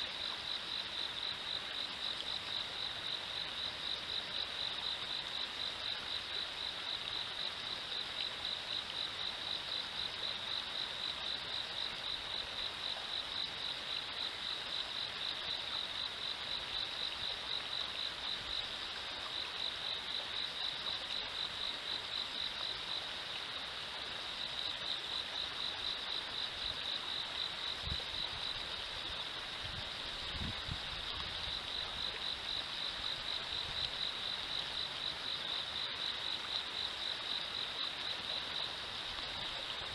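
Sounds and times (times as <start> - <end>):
river water running: 0.0 - 39.9.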